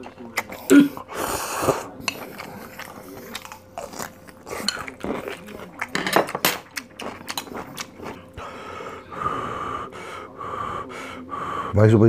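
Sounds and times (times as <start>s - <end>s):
crunchy bites and wet chewing: 1.7s - 8.5s.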